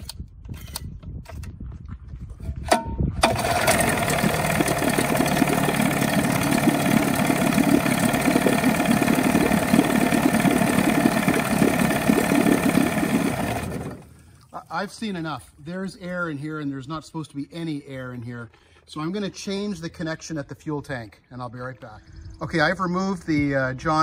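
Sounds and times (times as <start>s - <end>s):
outboard engine running: 3.2s - 14.3s.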